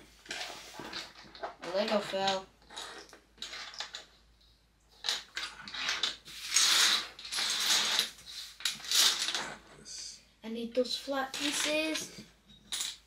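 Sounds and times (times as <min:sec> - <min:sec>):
plastic bricks clattering: 0:00.2 - 0:04.1, 0:05.0 - 0:09.6.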